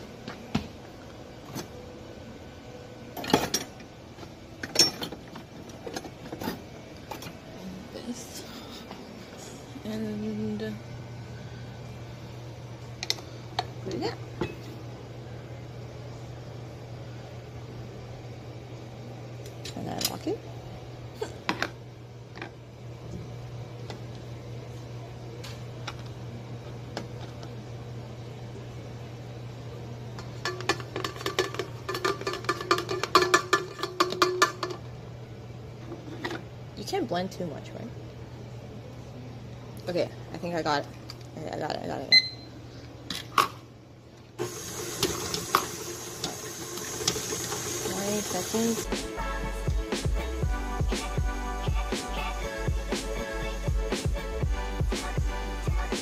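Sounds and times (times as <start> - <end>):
steady low hum: 0.0 - 44.8, 47.5 - 56.0
metal whisks clattering: 30.4 - 34.8.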